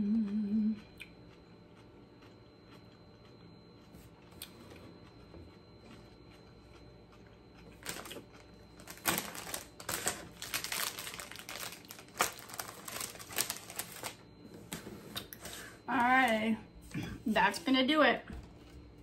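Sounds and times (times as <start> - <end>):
chip bag crinkling: 7.7 - 14.3.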